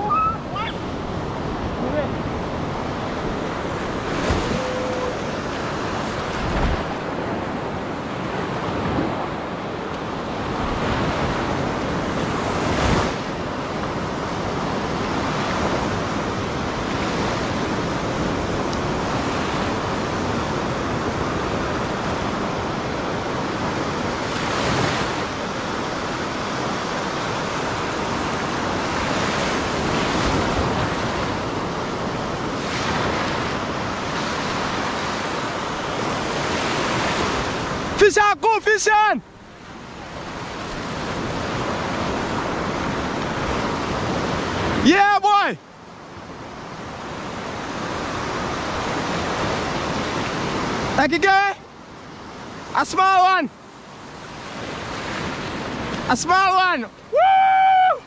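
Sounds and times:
wind on microphone: 0.0 - 38.0
ocean waves breaking on beach: 0.0 - 58.0.

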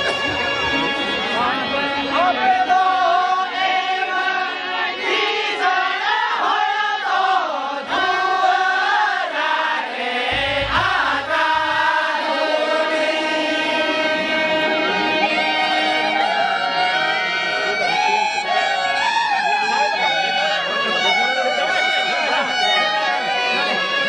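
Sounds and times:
harmonium chords: 0.0 - 7.0, 10.0 - 24.0
women singing folk song: 2.0 - 16.8
low thump: 10.3 - 12.4.

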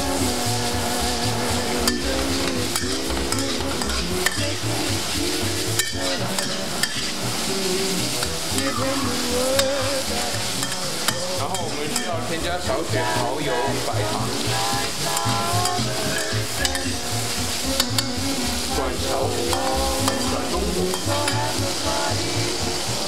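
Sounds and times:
beef sizzling in hot oil: 0.0 - 23.0
metal spatula scraping: 1.6 - 22.0
spatula clicking against pan: 9.6 - 12.2, 15.2 - 17.0, 17.8 - 18.2.

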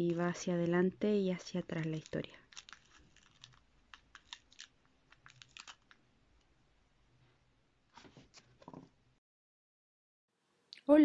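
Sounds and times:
paper crinkling: 0.0 - 6.0.

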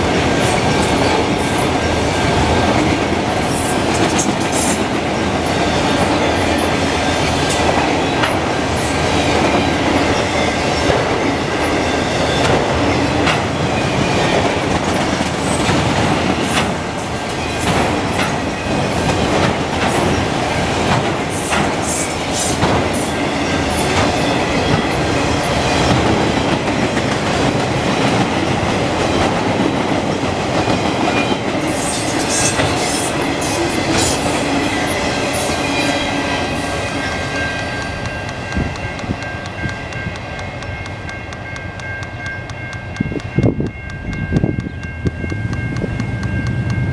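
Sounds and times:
rumble of steel wheels on rail: 0.0 - 46.9
wheels clicking over rail joints: 10.8 - 23.1, 37.2 - 46.9.

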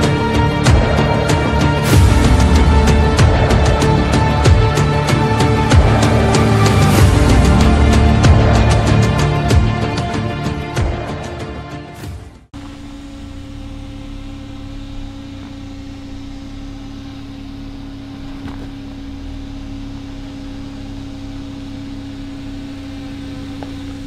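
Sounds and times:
engine rumble: 0.0 - 24.0
stones clicking under tyres: 18.1 - 24.0.

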